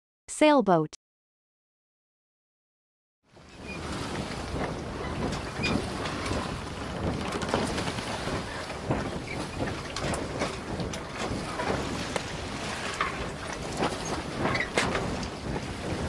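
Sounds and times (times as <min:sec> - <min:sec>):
water rushing along hulls: 0:03.3 - 0:16.0
wind blowing across microphone: 0:03.3 - 0:16.0.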